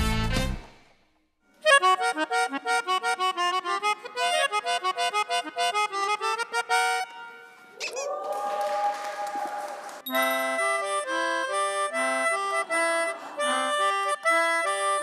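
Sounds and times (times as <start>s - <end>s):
melodica short notes: 1.6s - 7.6s, 10.1s - 15.0s.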